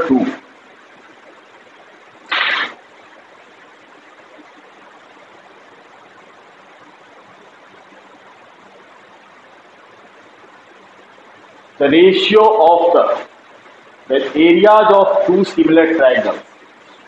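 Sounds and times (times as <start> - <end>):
room noise hiss: 0.0 - 17.0
short loud noise burst: 2.3 - 2.8.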